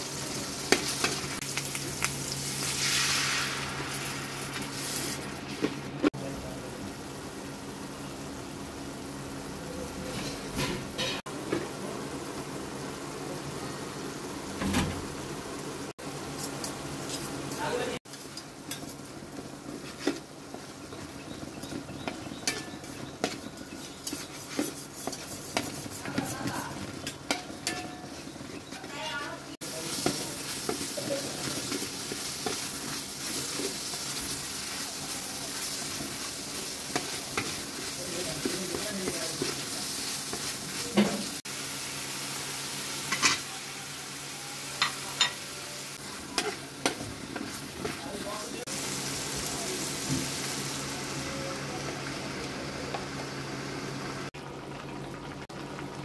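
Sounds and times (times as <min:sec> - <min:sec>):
low sizzle of frying: 0:00.0 - 0:56.0
metal spatula scraping a wok: 0:22.4 - 0:28.4.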